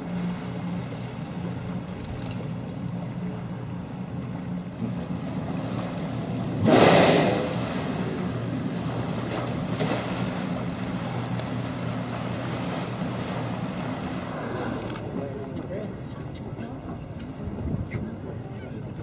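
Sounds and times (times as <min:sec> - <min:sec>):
boat engine humming: 0:00.0 - 0:19.0
whale blowing: 0:06.4 - 0:08.4, 0:13.0 - 0:15.4.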